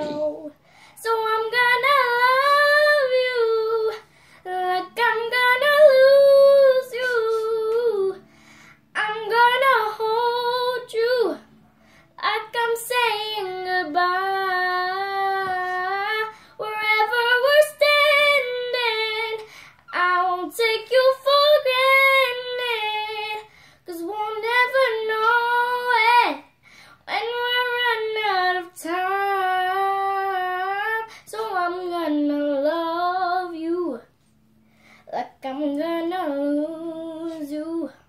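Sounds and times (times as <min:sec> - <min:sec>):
girl singing unaccompanied: 0:00.0 - 0:34.2, 0:35.0 - 0:38.0.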